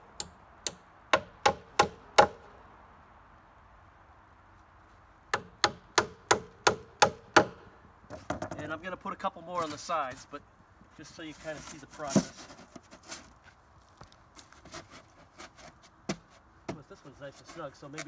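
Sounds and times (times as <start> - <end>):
hammer striking nails: 0.2 - 2.4, 5.3 - 7.6.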